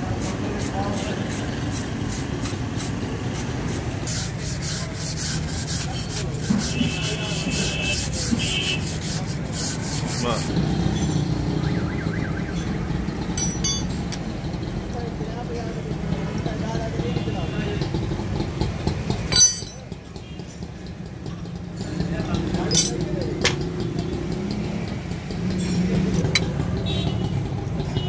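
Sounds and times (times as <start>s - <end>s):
metal scraper scraping rust: 0.1s - 10.5s, 19.2s - 19.9s, 22.6s - 23.2s
spanners clinking: 13.1s - 14.6s, 19.0s - 20.2s, 21.7s - 23.8s.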